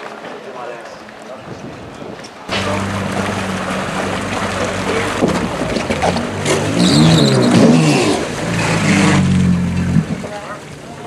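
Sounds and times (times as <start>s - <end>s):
personal watercraft engine revving: 2.5s - 11.0s.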